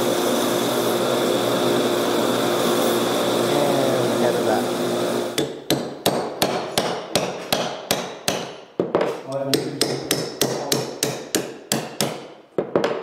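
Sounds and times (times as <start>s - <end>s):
hammer striking metal punch: 5.4s - 8.6s, 9.5s - 13.0s.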